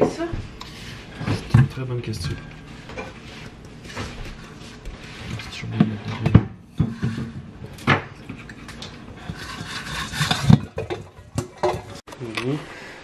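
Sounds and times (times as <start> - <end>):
rubbing and scraping: 8.2 - 12.0.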